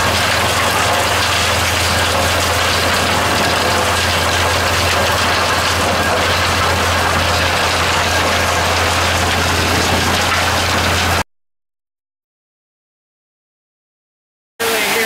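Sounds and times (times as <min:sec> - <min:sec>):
low hum: 0:00.0 - 0:11.2
trommel mechanical din: 0:00.0 - 0:11.2.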